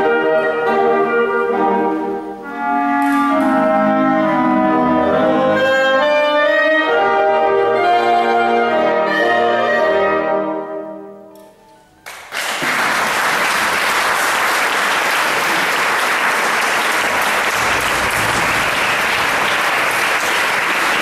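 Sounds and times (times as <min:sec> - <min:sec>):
audience applause: 0:12.1 - 0:21.0
wind ensemble chord: 0:17.1 - 0:21.0.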